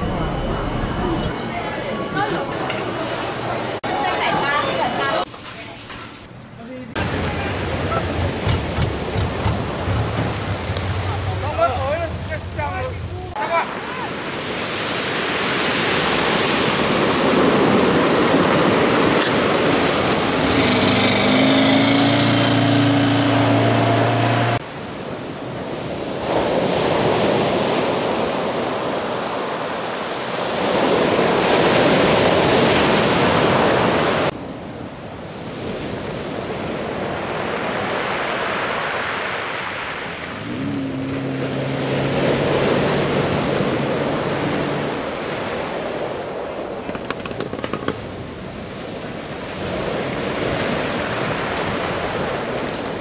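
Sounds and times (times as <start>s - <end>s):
surf breaking on shore: 7.0s - 34.5s, 35.4s - 53.0s
boat outboard motor running: 19.3s - 24.6s, 40.4s - 45.2s.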